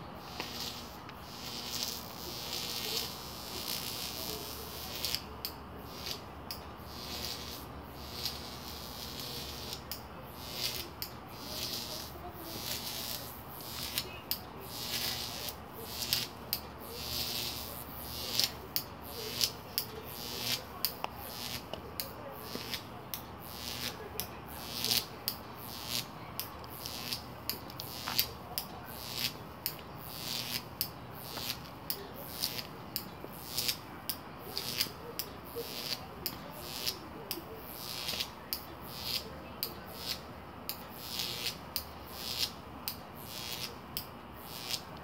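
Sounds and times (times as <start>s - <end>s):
sharp clicks: 16.0s - 45.0s.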